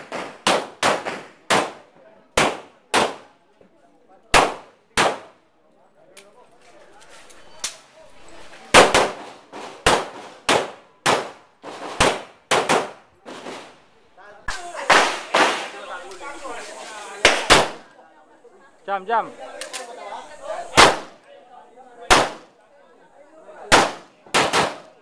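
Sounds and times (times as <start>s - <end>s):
handgun shots: 12.0s - 13.0s, 23.7s - 24.9s.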